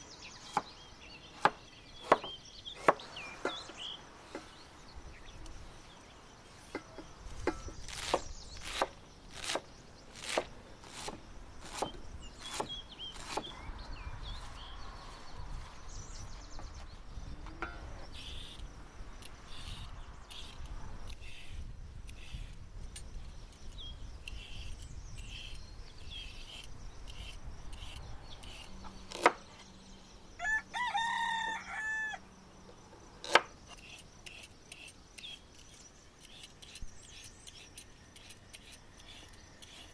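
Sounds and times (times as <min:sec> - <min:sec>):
knife chopping on wooden board: 0:01.4 - 0:03.6, 0:06.7 - 0:09.6, 0:10.2 - 0:13.5
peeler scraping a carrot: 0:18.1 - 0:29.3, 0:33.2 - 0:39.9
rooster crowing: 0:30.4 - 0:32.3.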